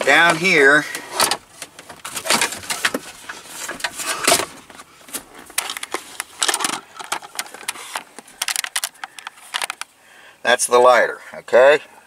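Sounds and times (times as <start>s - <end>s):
plastic trim clicks and rattles: 5.6s - 9.9s.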